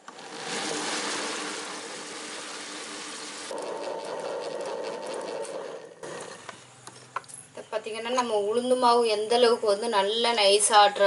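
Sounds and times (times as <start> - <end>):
wet grinder churning batter: 0.0 - 6.6
faint steady hum: 0.0 - 11.0.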